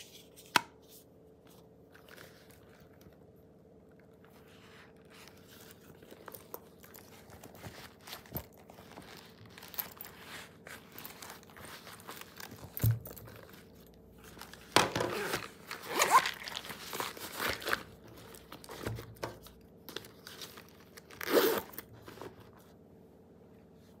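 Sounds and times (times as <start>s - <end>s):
fabric pouches rustling: 4.2s - 22.6s.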